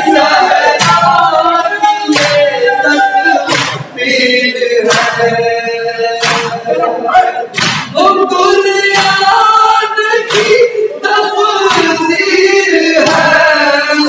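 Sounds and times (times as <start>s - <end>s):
men chanting: 0.0s - 14.0s
chest beating slaps: 0.7s - 1.3s, 2.1s - 2.6s, 3.5s - 4.0s, 4.9s - 5.4s, 6.2s - 6.7s, 7.5s - 8.0s, 8.9s - 9.3s, 10.3s - 10.7s, 11.7s - 12.0s.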